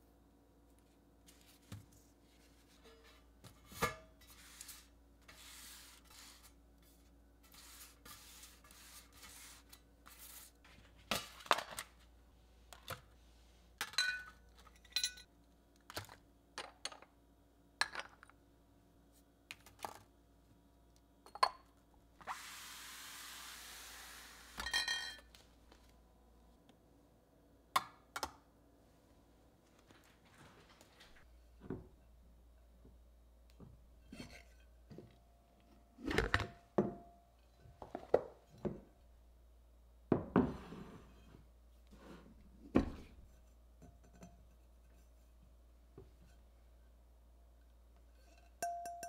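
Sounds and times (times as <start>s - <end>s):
clinks of pan and glass bottles: 13.8s - 15.3s, 24.6s - 25.3s, 48.2s - 49.0s
steady hiss: 22.3s - 24.6s.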